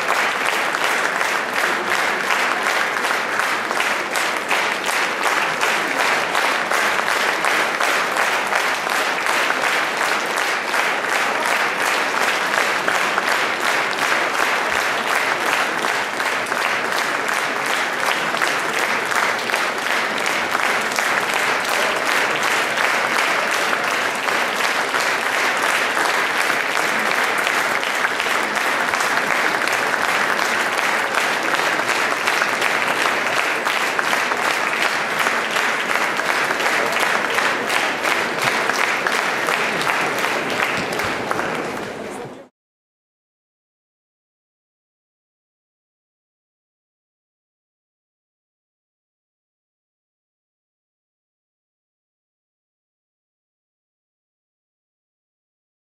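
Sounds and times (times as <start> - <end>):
audience applauding: 0.0 - 42.5.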